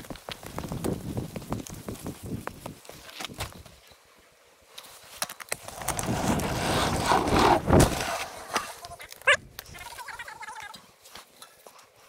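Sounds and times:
tyre and wind rush: 0.0s - 3.8s, 5.5s - 9.8s.

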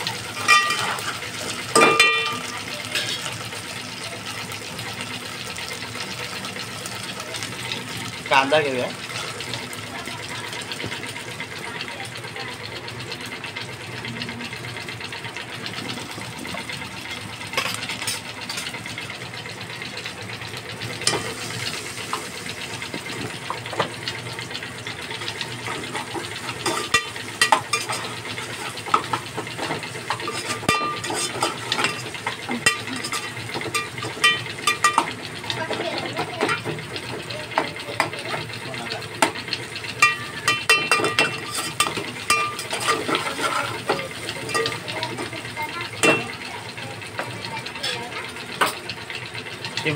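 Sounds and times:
onions sizzling in a pot: 0.0s - 49.9s
metal spoon clinking on a pot: 0.3s - 3.4s, 25.6s - 36.7s, 39.2s - 45.4s, 46.0s - 46.4s.

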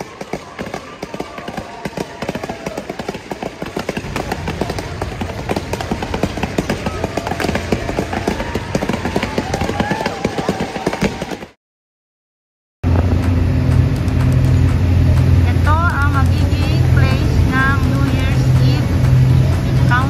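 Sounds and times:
low rumble: 12.8s - 20.0s
murmur of distant voices: 14.2s - 20.0s.

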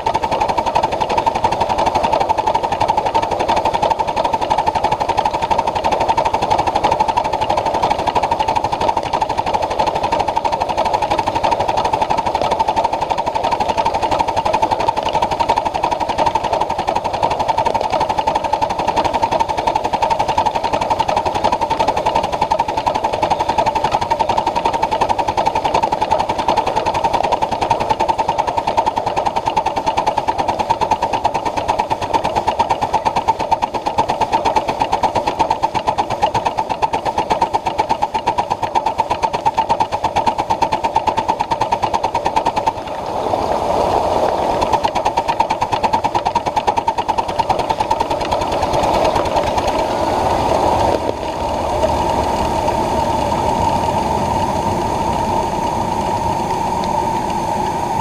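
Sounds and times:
miniature steam train clattering: 0.0s - 42.8s, 44.6s - 53.3s
smooth rushing sound: 42.6s - 44.9s, 48.5s - 58.0s.

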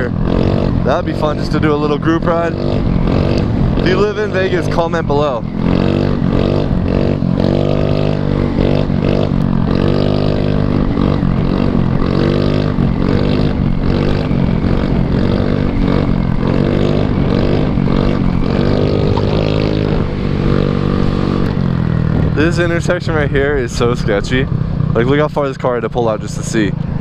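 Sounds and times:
scooter engine revving: 0.0s - 27.0s
wind rush on microphone: 10.4s - 24.9s.

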